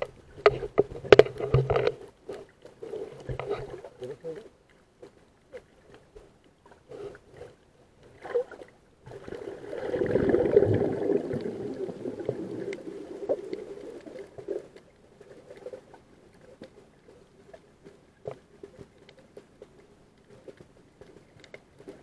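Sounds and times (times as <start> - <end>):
sharp clicks and crackles: 0.0 - 3.8
muffled underwater water rush: 0.0 - 22.0.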